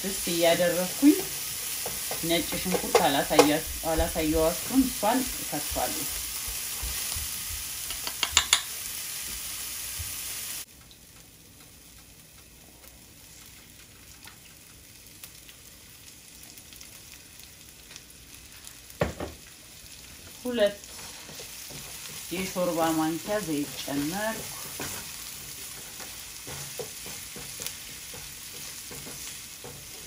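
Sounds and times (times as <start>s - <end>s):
onion sizzling in frying pan: 0.0s - 30.0s
wooden spatula scraping pan: 0.5s - 7.1s, 20.8s - 30.0s
knock: 19.0s - 19.4s.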